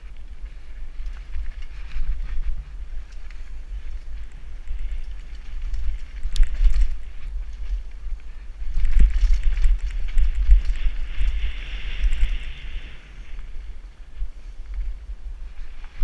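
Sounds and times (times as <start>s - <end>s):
wind buffeting microphone: 0.0s - 16.0s
bike rattling and knocking: 0.9s - 12.3s.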